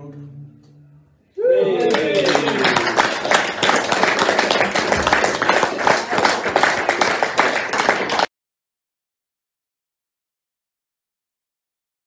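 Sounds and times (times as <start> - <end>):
audience applauding: 1.6 - 8.3.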